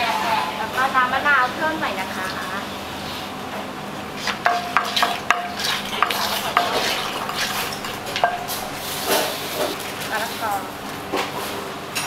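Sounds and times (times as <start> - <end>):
metal utensil scraping a pan: 4.2 - 9.8.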